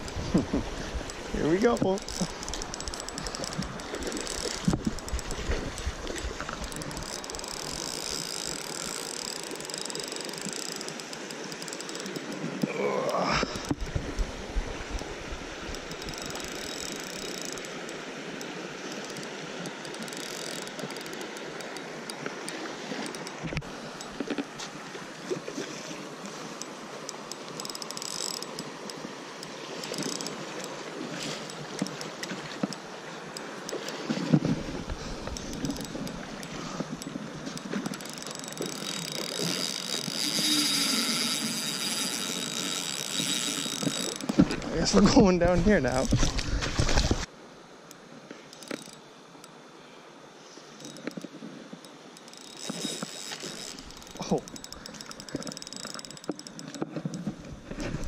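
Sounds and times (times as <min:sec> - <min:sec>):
fishing reel ticking: 0:00.0 - 0:24.4, 0:25.9 - 0:45.1, 0:45.8 - 0:46.2, 0:47.9 - 0:49.6, 0:50.8 - 0:57.4
creek rushing: 0:00.0 - 0:47.8.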